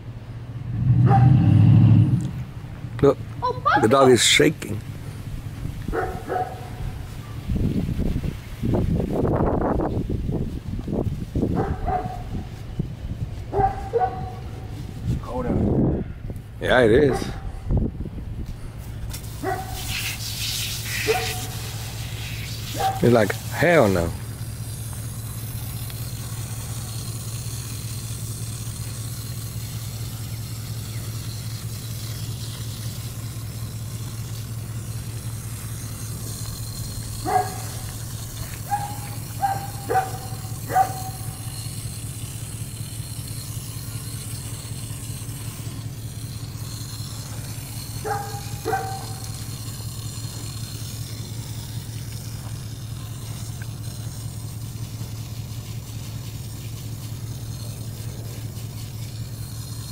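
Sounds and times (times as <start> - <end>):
low motor hum: 0.0 - 59.9.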